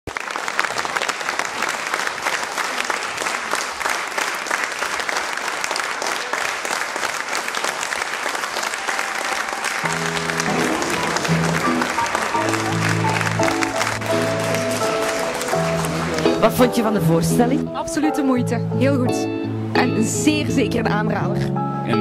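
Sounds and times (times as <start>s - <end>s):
audience applauding: 0.1s - 17.5s
music with low sustained notes: 9.6s - 21.7s.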